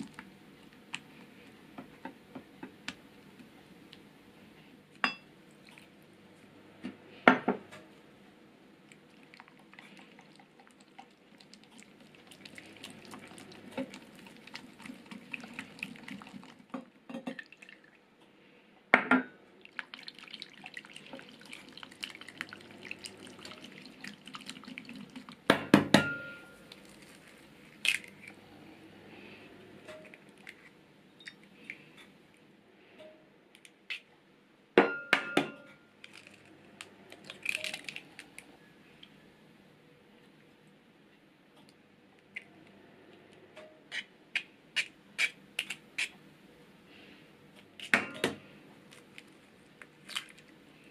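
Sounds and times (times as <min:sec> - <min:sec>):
milk pouring: 0:08.9 - 0:18.0, 0:19.6 - 0:25.5.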